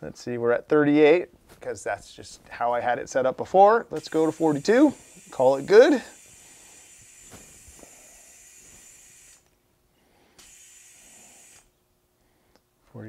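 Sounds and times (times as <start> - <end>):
air hissing into tyre valve: 4.0 - 9.4, 10.4 - 11.7.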